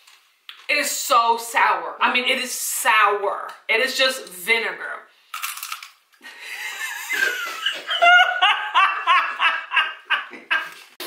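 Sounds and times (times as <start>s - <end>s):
high rapid laugh: 6.4s - 10.8s
people laughing hard: 6.5s - 10.8s.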